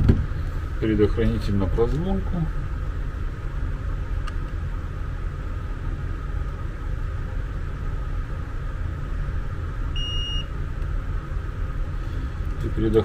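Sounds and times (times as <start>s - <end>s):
low background rumble: 0.0s - 13.0s
multimeter beep: 9.9s - 10.5s.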